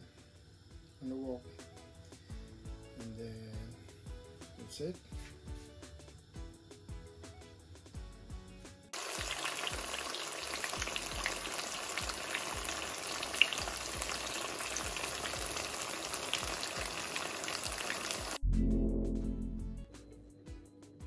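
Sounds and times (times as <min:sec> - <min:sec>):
tofu sizzling in hot oil: 0:05.4 - 0:18.4.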